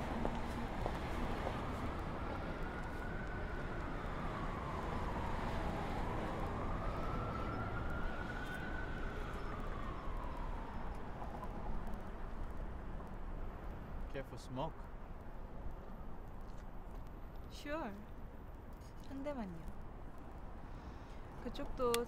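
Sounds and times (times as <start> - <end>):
distant city traffic hum: 0.0 - 22.0
siren wailing: 1.4 - 11.8.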